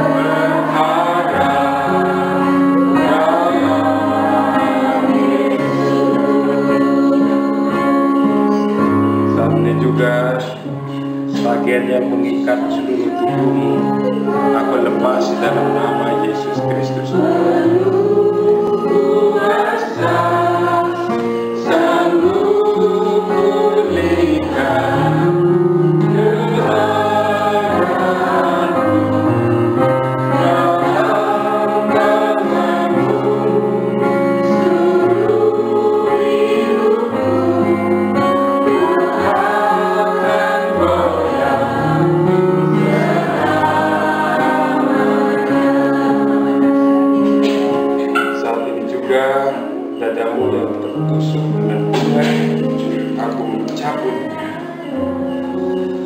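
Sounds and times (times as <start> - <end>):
choir singing gospel song: 0.0 - 56.0.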